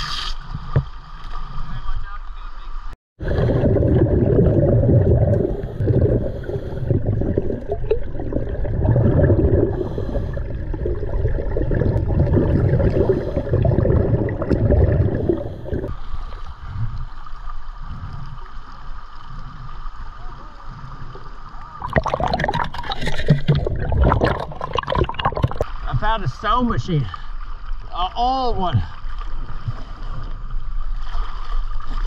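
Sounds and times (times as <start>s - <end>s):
water lapping and splashing: 0.0s - 32.0s
underwater regulator bubbles: 3.2s - 15.9s, 21.6s - 25.7s.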